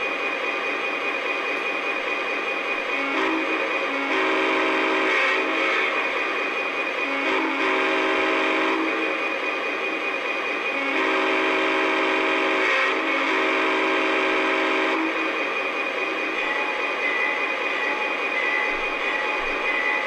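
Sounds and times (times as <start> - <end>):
multi-tone diesel horn blasts: 3.0 - 6.1, 7.0 - 9.1, 10.7 - 15.3.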